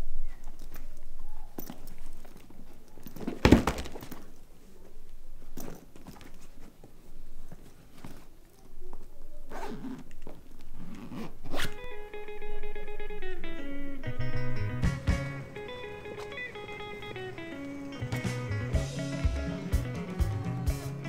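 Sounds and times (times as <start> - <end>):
bag being handled: 0.2 - 11.8
zipper on fabric bag: 9.5 - 10.1, 10.8 - 11.8.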